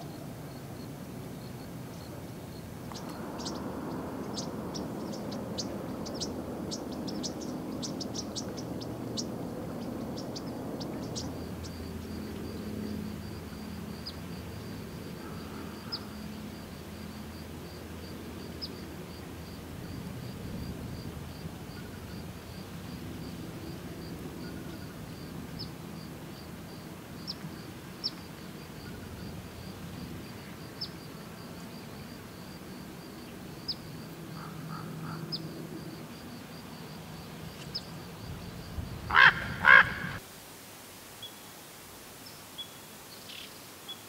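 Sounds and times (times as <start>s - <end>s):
low outdoor rumble: 2.6s - 27.2s
raven calling: 15.2s - 16.2s, 34.4s - 35.4s, 39.1s - 40.2s.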